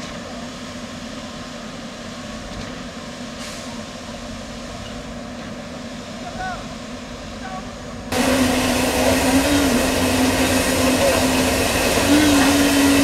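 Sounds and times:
diesel engines droning: 3.0s - 13.0s
brief hiss: 3.4s - 3.8s.

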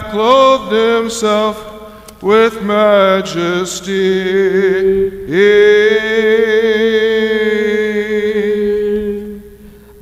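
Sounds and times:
low drone chant note: 0.0s - 9.8s
chanting melody voice: 0.0s - 10.0s.

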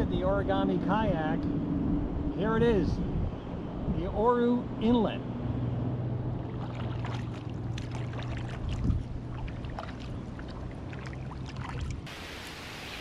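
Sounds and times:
water splashing and dripping: 6.4s - 13.0s.

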